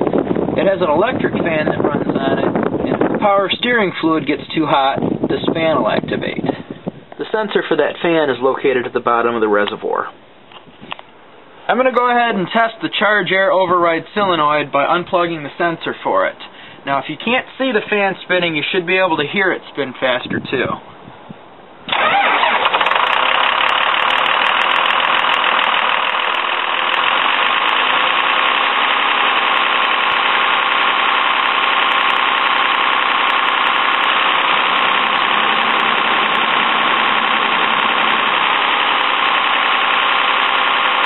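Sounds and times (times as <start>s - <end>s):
cooling fan rushing: 0.0s - 8.7s, 21.0s - 41.0s.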